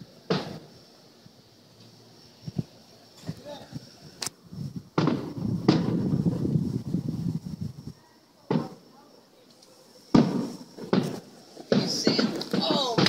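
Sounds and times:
firework shells bursting: 0.0s - 1.0s, 1.7s - 7.5s, 8.4s - 8.9s, 9.5s - 13.0s
low rolling rumble: 2.3s - 8.0s.

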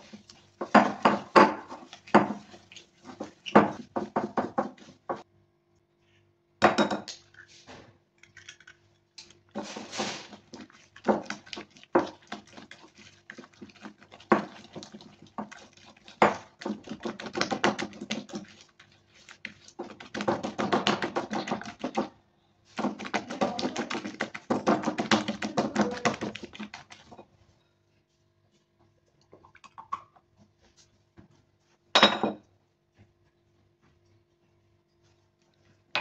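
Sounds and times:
whisk clicking against bowl: 10.5s - 22.1s, 22.8s - 27.2s.

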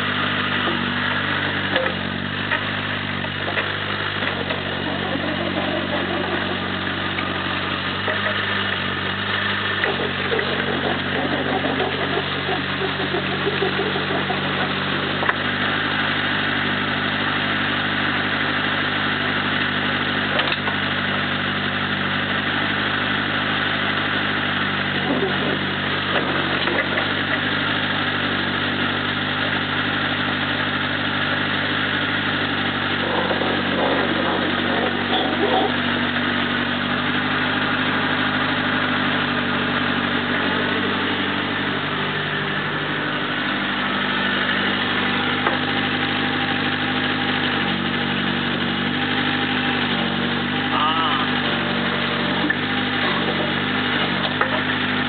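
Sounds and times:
excavator diesel engine running: 0.0s - 55.0s.

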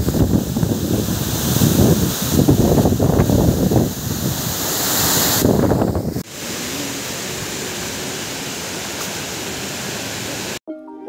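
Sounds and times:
wind buffeting microphone: 0.0s - 6.2s
waterfall rushing: 0.0s - 10.6s.

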